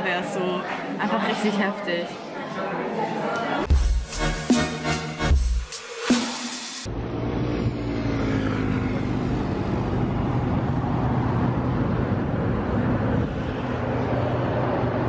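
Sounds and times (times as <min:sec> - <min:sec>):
street noise rumble: 0:06.9 - 0:15.0.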